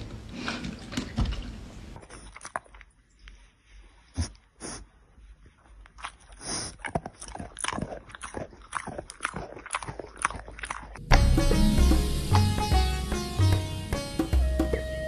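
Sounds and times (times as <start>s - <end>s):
animal crunching a hard treat: 5.6s - 11.0s
plucked sitar-like music: 11.0s - 15.0s.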